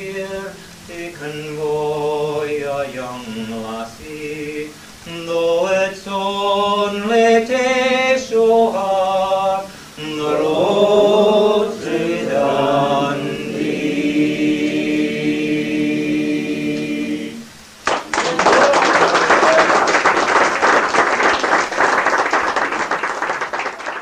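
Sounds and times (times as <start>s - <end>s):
choir singing unaccompanied: 0.0s - 17.8s.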